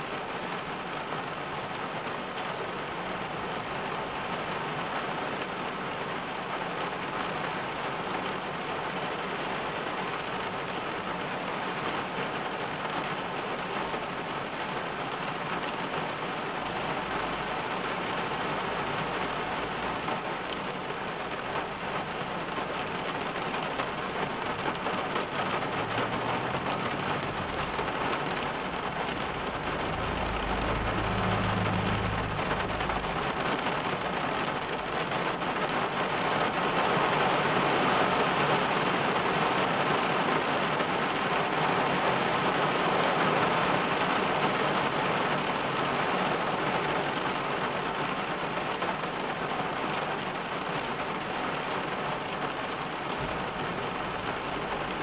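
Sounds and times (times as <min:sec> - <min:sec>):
rain drumming on a car roof: 0:00.0 - 0:55.0
low rumble: 0:29.2 - 0:33.5.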